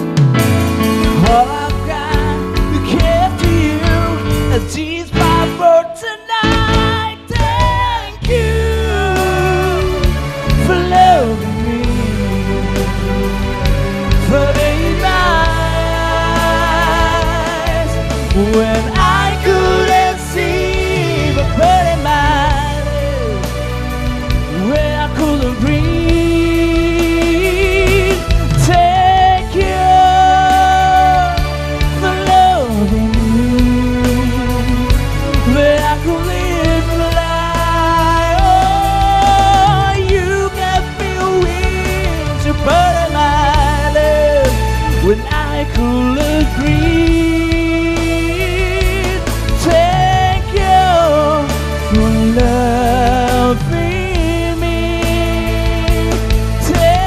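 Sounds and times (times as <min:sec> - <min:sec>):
bass guitar: 0:00.0 - 0:57.0
electric guitar: 0:00.0 - 0:57.0
keyboard: 0:00.0 - 0:57.0
men singing into microphones: 0:01.1 - 0:23.6, 0:24.5 - 0:57.0.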